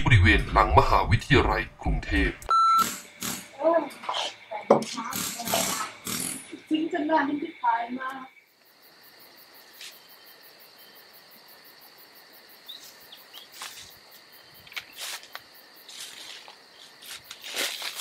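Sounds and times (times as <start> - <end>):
high insect drone: 1.4 - 18.0
bird chirps: 12.6 - 13.6
steps on dry leaf litter: 12.8 - 18.0.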